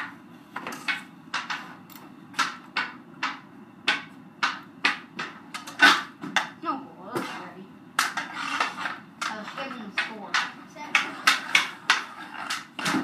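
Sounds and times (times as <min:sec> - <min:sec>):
hockey stick clacking ball: 0:08.0 - 0:13.0.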